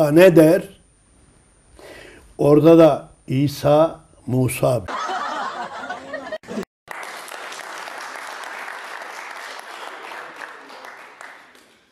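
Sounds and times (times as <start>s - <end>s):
crowd applauding: 6.9s - 11.9s.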